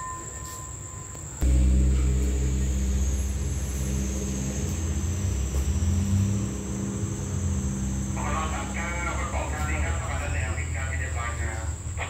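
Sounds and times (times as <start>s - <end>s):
low engine rumble: 1.2s - 12.0s.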